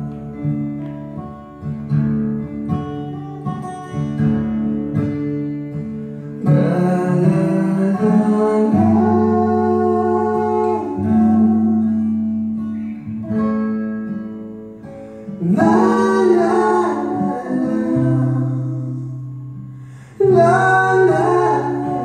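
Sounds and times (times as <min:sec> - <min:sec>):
acoustic guitar plucking: 0:00.0 - 0:22.0
person singing: 0:06.4 - 0:12.4, 0:15.4 - 0:22.0.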